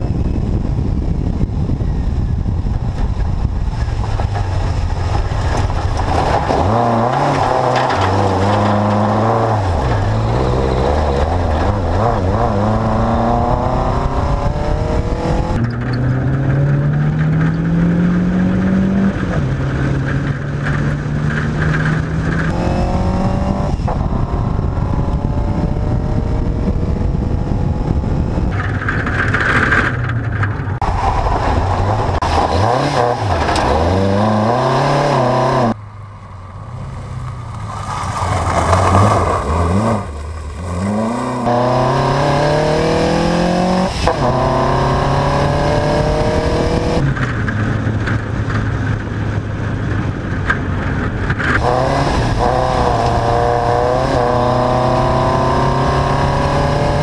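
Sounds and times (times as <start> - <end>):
rally car engine revving hard: 5.0 - 28.5, 30.8 - 35.8, 38.2 - 49.4, 51.2 - 57.0.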